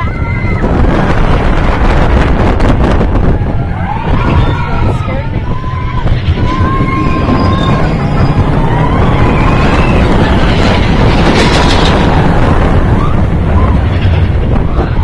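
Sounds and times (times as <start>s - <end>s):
roller coaster rumbling on track: 0.0s - 15.0s.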